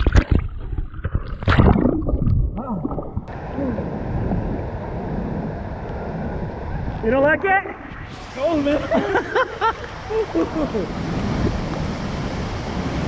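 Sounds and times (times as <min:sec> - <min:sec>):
waterfall rushing: 0:08.1 - 0:13.0.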